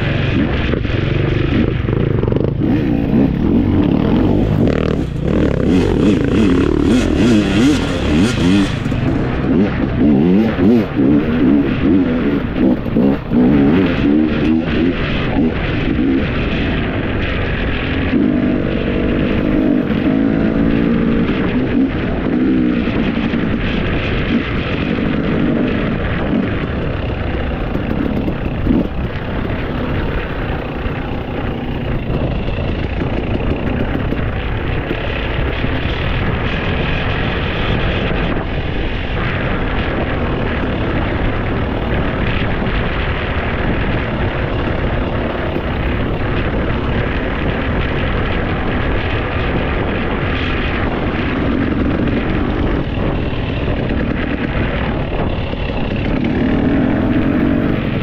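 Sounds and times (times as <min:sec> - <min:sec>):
low wavering drone: 0:00.0 - 0:41.0
road and wind noise: 0:00.0 - 0:58.0
vehicle engine running: 0:00.0 - 0:58.0.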